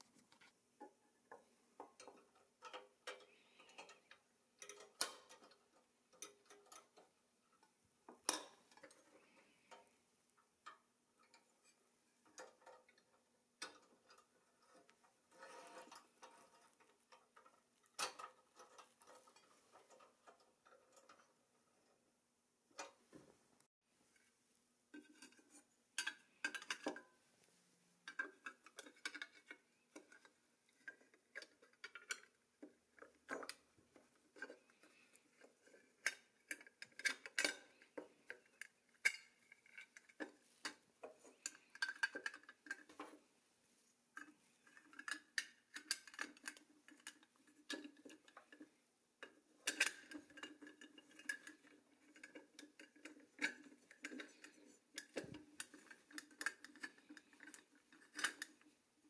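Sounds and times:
light metallic clicks and clinks: 44.2 - 58.8.

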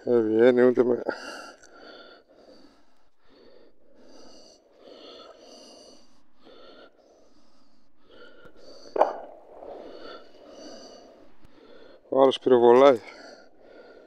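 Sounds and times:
low rushing background noise: 7.9 - 14.0.

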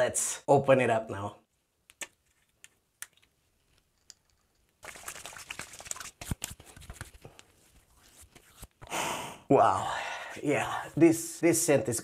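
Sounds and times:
wet rubbing and patting on face: 4.8 - 8.8.

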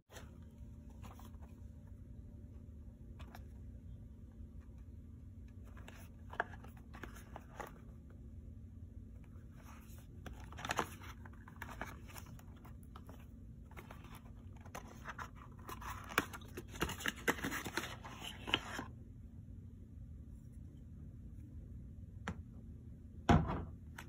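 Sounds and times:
cardboard carton rustling: 9.6 - 18.9.

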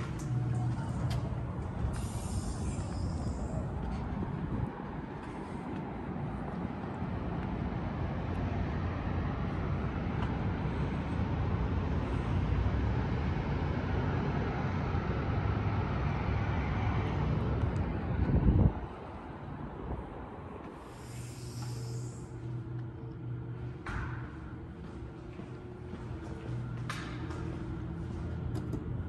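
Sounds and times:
wind buffeting microphone: 0.0 - 7.9, 17.4 - 20.8.

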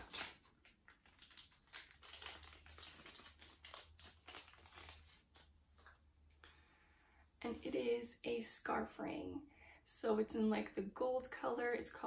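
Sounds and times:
wrapping crinkling: 0.0 - 6.0.

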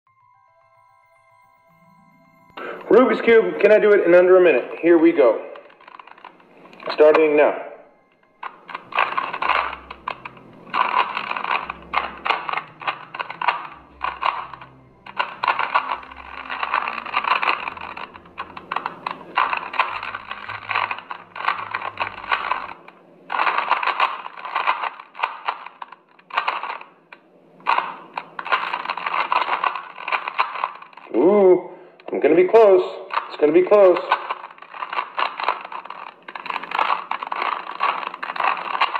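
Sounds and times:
puzzle cube clicking: 5.5 - 7.4, 8.4 - 31.2, 33.0 - 38.9.

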